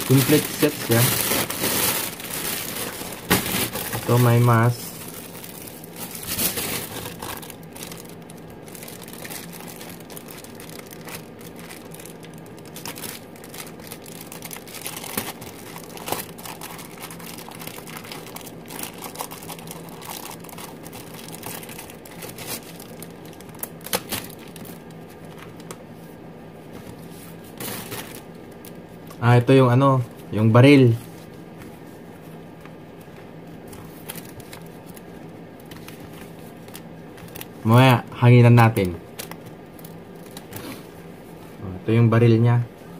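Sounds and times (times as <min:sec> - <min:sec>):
plastic packaging crinkling: 0:00.0 - 0:25.8, 0:27.4 - 0:28.9, 0:33.0 - 0:37.9, 0:38.8 - 0:40.8.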